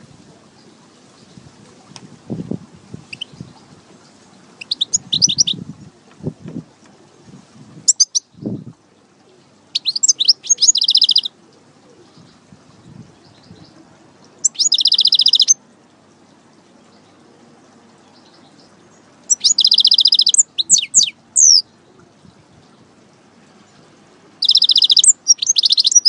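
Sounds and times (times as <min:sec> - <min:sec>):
finch singing: 0:03.0 - 0:05.7, 0:07.9 - 0:08.7, 0:09.4 - 0:15.6, 0:18.1 - 0:22.9, 0:23.6 - 0:26.0.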